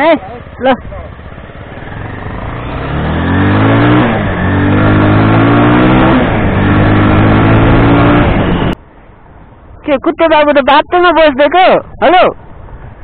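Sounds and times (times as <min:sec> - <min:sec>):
motorcycle engine accelerating: 0:00.0 - 0:08.8.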